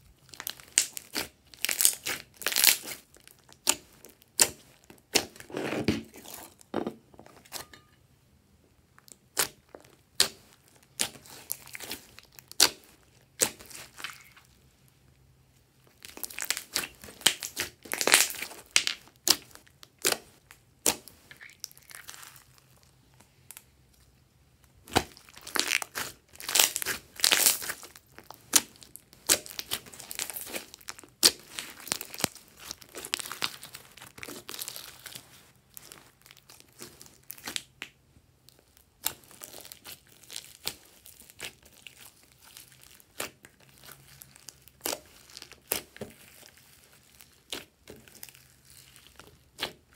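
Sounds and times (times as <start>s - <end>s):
slime squishing and popping: 0.3s - 6.5s, 9.0s - 14.4s, 16.0s - 22.9s, 24.8s - 49.9s.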